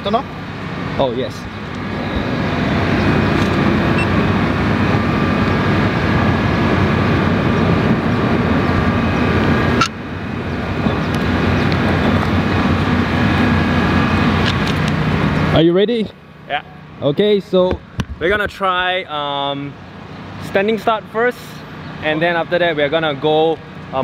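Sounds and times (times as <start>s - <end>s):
machine drone: 0.0s - 18.0s.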